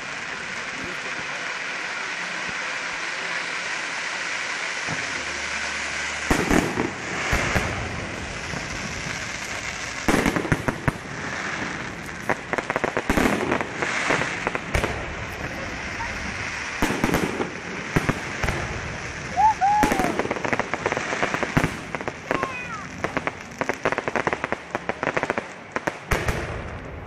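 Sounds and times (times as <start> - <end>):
steady background hiss: 0.0 - 27.0
firework shells bursting: 6.1 - 26.9.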